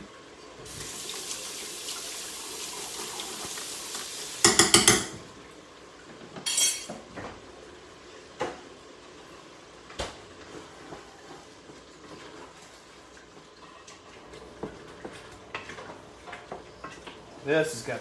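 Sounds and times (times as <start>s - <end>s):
pots and dishes clattering: 4.4s - 5.3s, 6.2s - 7.4s.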